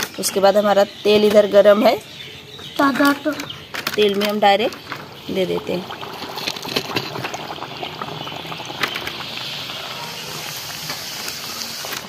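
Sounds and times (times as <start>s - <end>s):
oil sizzling and popping: 4.0s - 12.0s.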